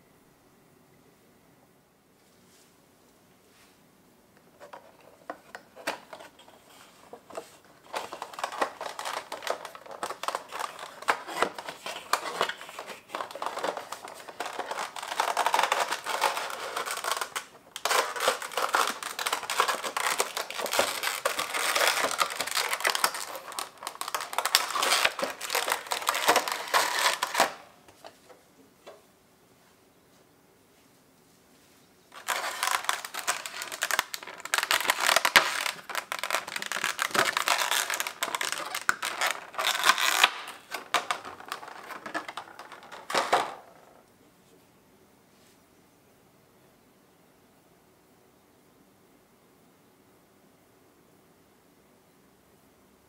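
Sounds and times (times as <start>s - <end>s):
plastic and cardboard crinkling: 4.6s - 29.0s, 32.1s - 43.9s.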